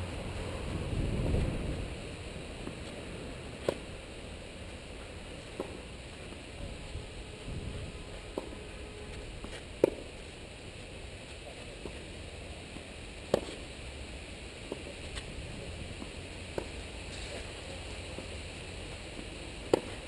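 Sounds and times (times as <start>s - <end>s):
low background noise: 0.0s - 20.0s
tennis ball bouncing: 3.6s - 3.9s, 5.4s - 5.8s, 8.3s - 8.6s, 9.4s - 10.2s, 13.3s - 13.6s, 14.6s - 15.2s, 16.0s - 16.8s, 19.2s - 20.0s
tennis ball struck by racket: 3.6s - 3.9s, 5.6s - 5.8s, 9.4s - 10.1s, 13.3s - 13.6s, 19.6s - 20.0s.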